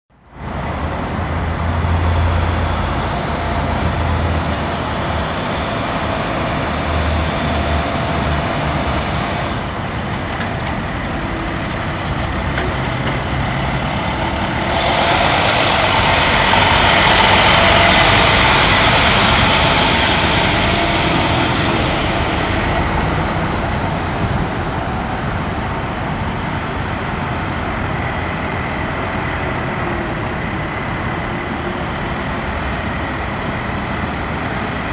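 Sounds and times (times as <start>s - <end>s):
truck diesel engine running: 1.2s - 34.9s.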